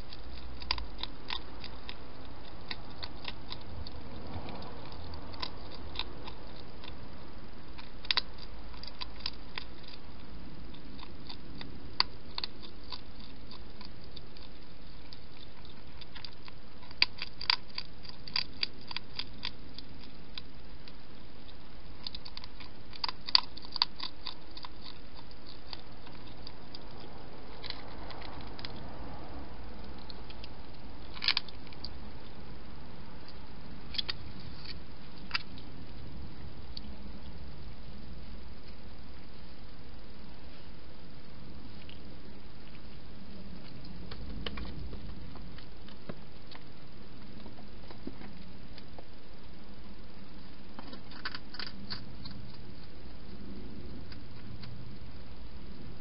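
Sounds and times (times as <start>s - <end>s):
hedgehog crunching dry food: 0.0s - 56.0s
steady hiss: 0.0s - 56.0s.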